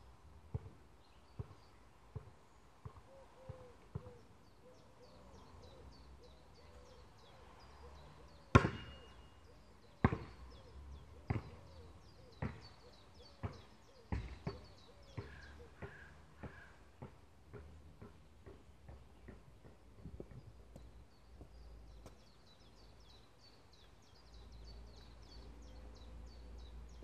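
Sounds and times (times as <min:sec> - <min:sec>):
basketball bouncing on court: 0:00.5 - 0:03.0, 0:08.5 - 0:09.0, 0:10.0 - 0:10.4, 0:11.3 - 0:11.6, 0:12.4 - 0:12.7
birds singing: 0:01.0 - 0:17.1, 0:18.0 - 0:27.0.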